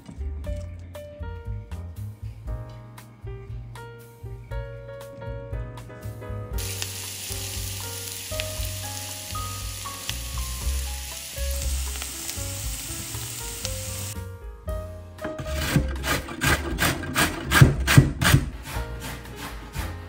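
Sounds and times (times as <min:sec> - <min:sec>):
onion sizzling in oil: 0:06.6 - 0:14.2.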